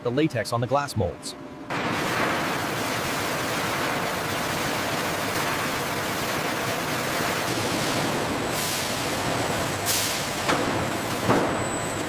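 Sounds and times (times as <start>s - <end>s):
water pouring into tanks: 1.9s - 9.1s.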